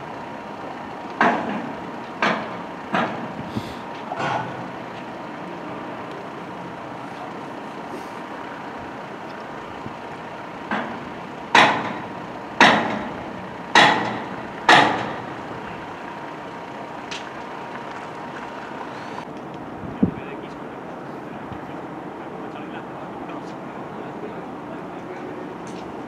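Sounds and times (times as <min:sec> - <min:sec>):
steady background rumble: 0:00.0 - 0:26.0
heavy ringing knocks: 0:10.6 - 0:15.3.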